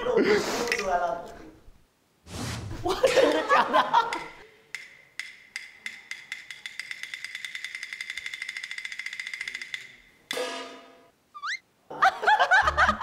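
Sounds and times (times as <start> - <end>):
wood-block clicks: 4.1 - 10.2.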